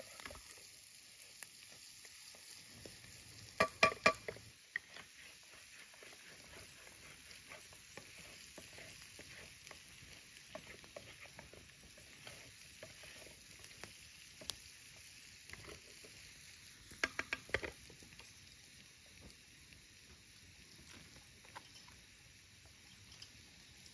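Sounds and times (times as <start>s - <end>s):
pasta sizzling in a pan: 0.0s - 23.9s
spatula knocking against pan: 3.6s - 4.4s
wooden spatula scraping pan: 3.6s - 14.5s.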